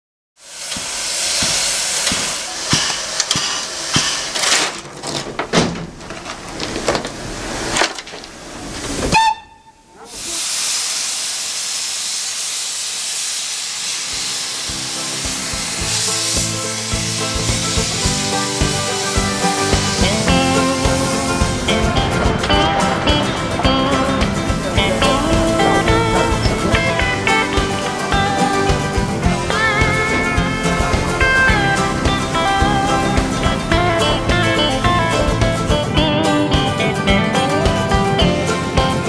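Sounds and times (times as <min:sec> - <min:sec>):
locomotive steam hissing: 0:00.4 - 0:05.2, 0:06.4 - 0:39.0
music: 0:14.0 - 0:39.0.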